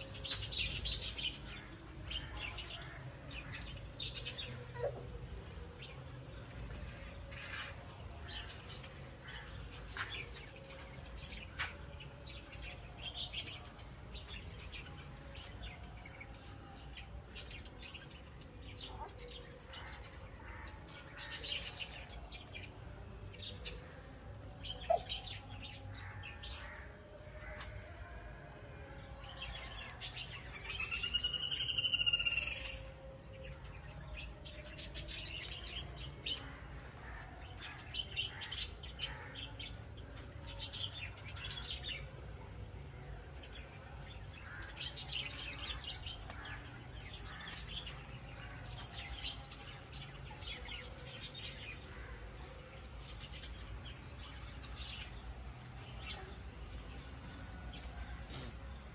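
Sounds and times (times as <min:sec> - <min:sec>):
birds chirping: 0:29.2 - 0:58.9.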